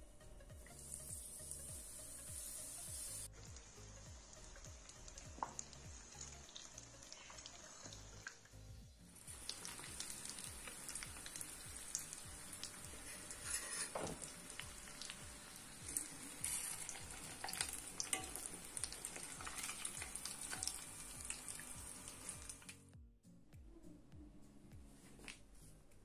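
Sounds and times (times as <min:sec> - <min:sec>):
food deep-frying in hot oil: 0:00.7 - 0:22.8
metal spoon turning food in pan: 0:09.2 - 0:22.8.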